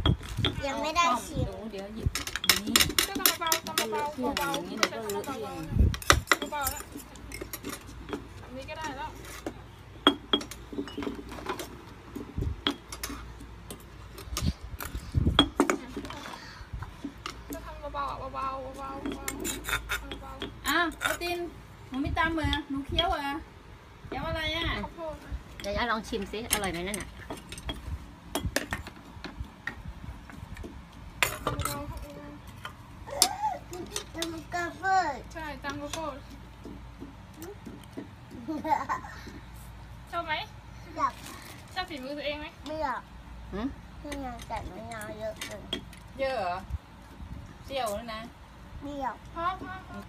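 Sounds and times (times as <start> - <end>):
metal spoon clinking on clay: 2.1 - 11.7, 17.2 - 23.2.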